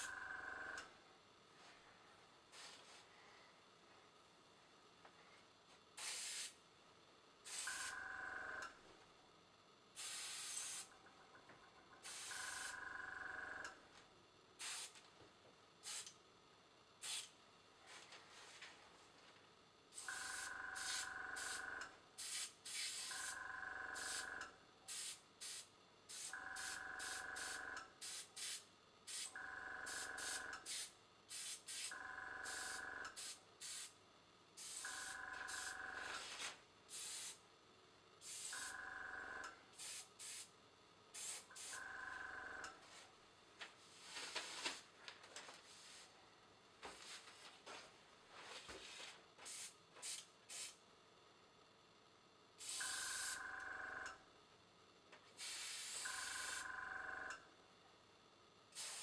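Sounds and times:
airbrush hissing bursts: 6.0s - 6.6s, 10.0s - 10.9s, 14.6s - 14.9s, 29.9s - 31.9s, 32.5s - 33.9s, 36.9s - 37.4s, 39.8s - 40.5s, 55.4s - 56.6s, 58.8s - 59.0s.

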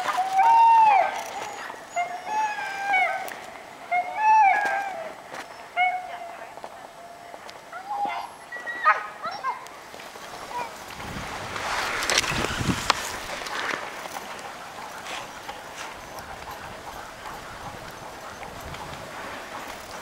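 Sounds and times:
sled runners hissing on snow: 9.8s - 20.0s.

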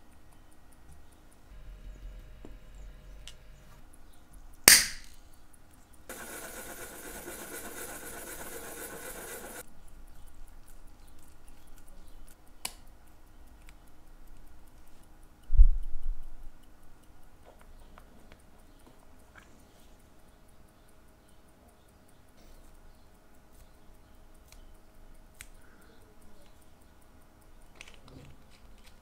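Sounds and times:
rubbing of small parts: 6.1s - 9.6s.

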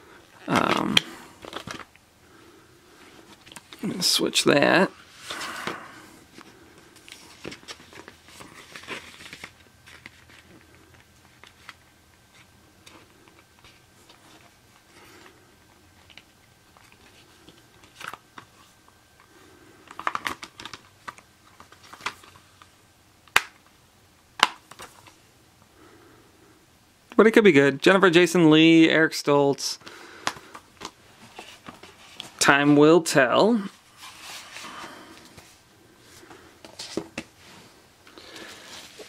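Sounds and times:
paper and plastic rustling: 0.4s - 1.9s, 5.1s - 15.3s, 16.0s - 18.8s, 19.8s - 22.7s, 30.2s - 32.4s, 33.6s - 39.0s.

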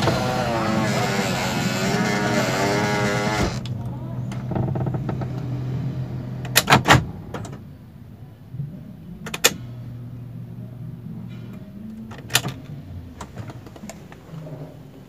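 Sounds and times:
car engine idling drone: 0.0s - 12.0s.

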